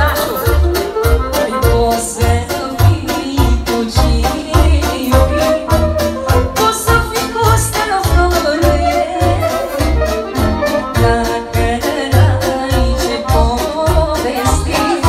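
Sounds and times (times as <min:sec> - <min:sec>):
clarinet playing ornamented melody: 0:00.0 - 0:02.2, 0:05.1 - 0:06.7, 0:08.6 - 0:11.4
woman singing into a microphone: 0:00.0 - 0:10.1, 0:10.7 - 0:15.0.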